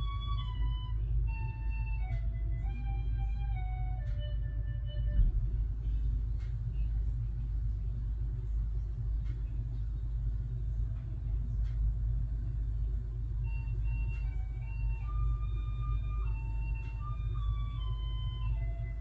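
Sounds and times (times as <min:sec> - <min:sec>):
slow tune of held notes: 0:00.0 - 0:08.0, 0:12.1 - 0:19.0
steady low rumble: 0:00.0 - 0:19.0.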